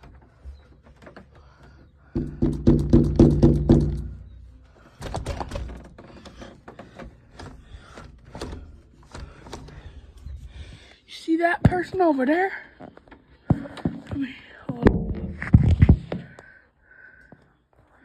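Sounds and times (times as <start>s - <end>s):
knocks against door frame: 2.2s - 4.2s.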